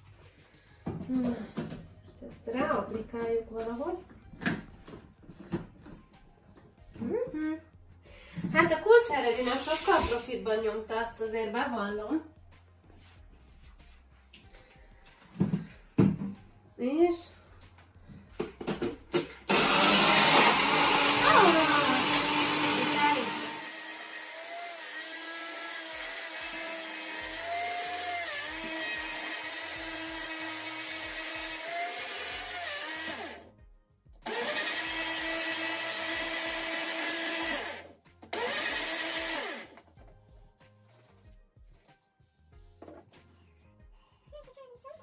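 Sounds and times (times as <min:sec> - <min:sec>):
bottle blender running: 0:09.3 - 0:10.3, 0:18.8 - 0:33.5, 0:34.2 - 0:39.8.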